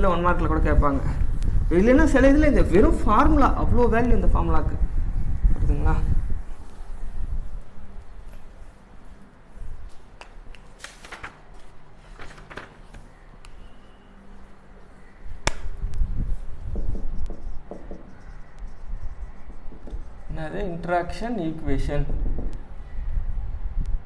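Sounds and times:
sharp click: 15.4s - 16.0s.

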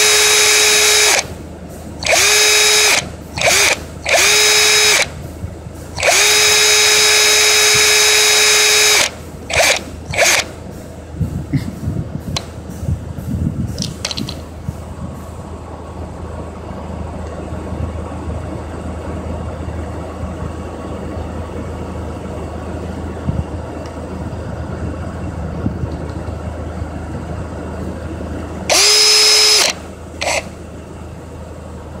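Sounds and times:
power drill motor whining: 0.0s - 1.3s, 2.0s - 5.2s, 6.0s - 10.5s, 28.7s - 30.5s
steady low hum: 0.0s - 32.0s.

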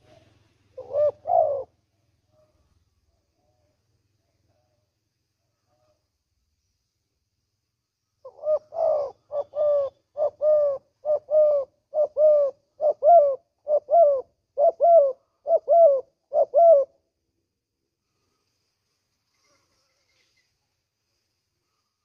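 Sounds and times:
dove cooing: 0.0s - 2.7s, 8.2s - 17.0s.

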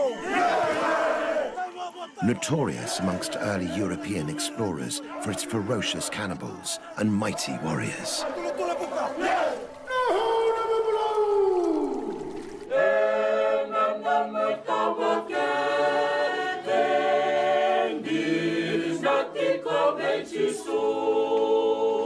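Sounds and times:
choir singing a hymn: 2.2s - 9.7s, 12.7s - 22.0s.

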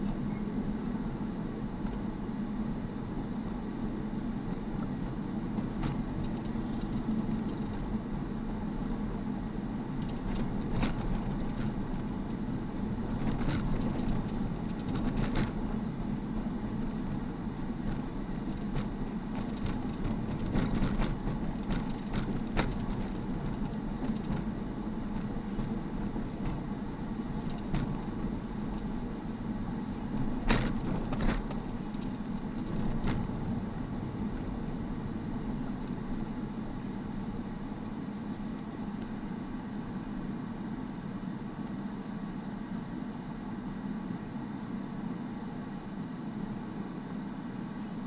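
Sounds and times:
car engine and tyre hum: 0.0s - 48.0s.

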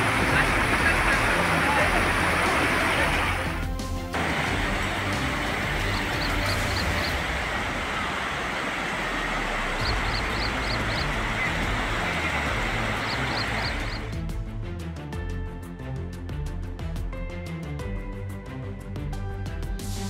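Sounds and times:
river floodwater rushing: 0.0s - 14.2s
music with a beat: 3.5s - 7.2s, 9.9s - 20.0s
high chirps: 5.7s - 7.2s, 9.8s - 14.0s.

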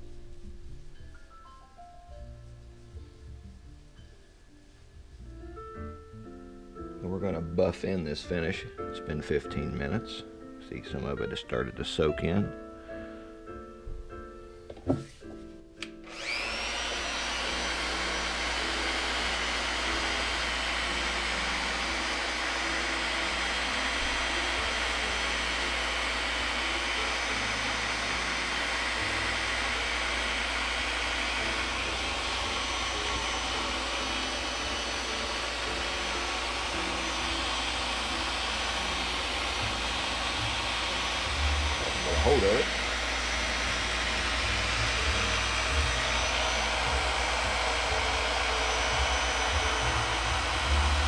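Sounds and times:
electric orbital sander whining: 16.0s - 51.0s.

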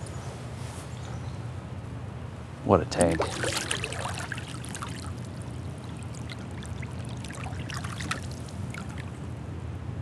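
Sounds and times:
low water rush: 3.0s - 9.2s
water splashes and drips: 3.0s - 9.2s.

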